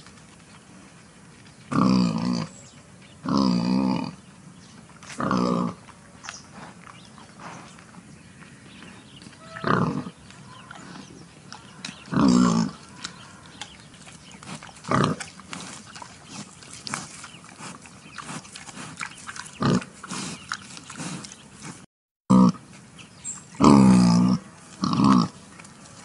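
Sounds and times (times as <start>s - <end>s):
wild boar grunting: 3.2s - 4.3s, 5.0s - 7.8s, 8.5s - 22.6s, 23.5s - 25.4s.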